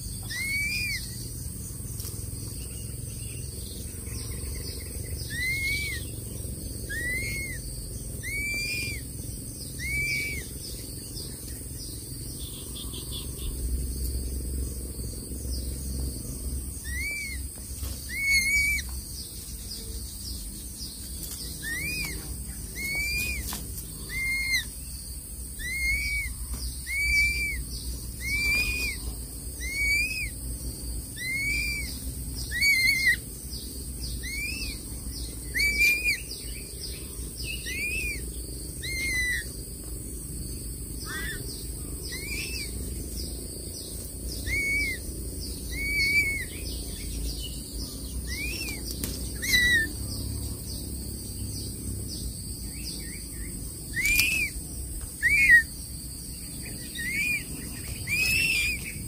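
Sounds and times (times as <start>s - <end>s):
insect hiss: 0.0s - 59.0s
eagle whistled call: 0.2s - 1.2s, 5.2s - 6.1s, 6.9s - 9.1s, 9.7s - 10.6s, 16.8s - 17.4s, 18.0s - 18.9s, 21.6s - 23.5s, 24.1s - 24.8s, 25.6s - 30.4s, 31.2s - 33.2s, 34.2s - 34.8s, 35.5s - 36.5s, 37.5s - 38.2s, 38.8s - 39.5s, 41.0s - 41.4s, 42.1s - 42.8s, 44.4s - 45.1s, 45.7s - 47.1s, 48.3s - 49.9s, 53.9s - 54.6s, 55.2s - 55.8s, 56.8s - 59.0s.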